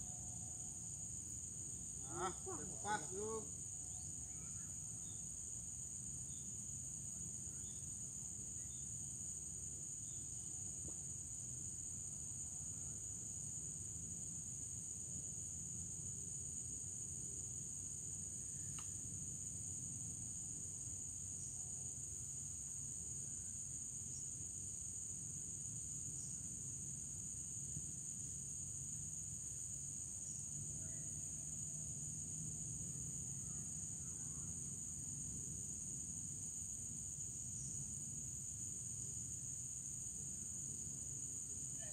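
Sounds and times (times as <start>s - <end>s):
crickets chirping: 0.0s - 41.9s.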